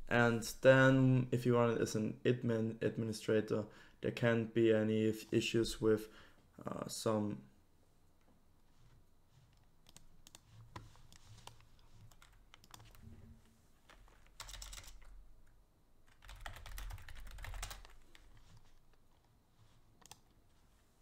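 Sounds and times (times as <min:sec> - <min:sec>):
faint keyboard typing: 0:08.1 - 0:20.4.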